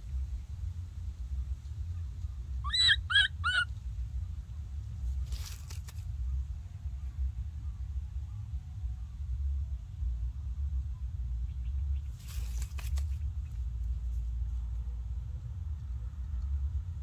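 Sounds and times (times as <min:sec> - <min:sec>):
low steady rumble: 0:00.0 - 0:17.0
baby monkey squeaking calls: 0:02.6 - 0:03.7
rustle of leaves and twigs: 0:04.8 - 0:06.4, 0:12.0 - 0:14.8.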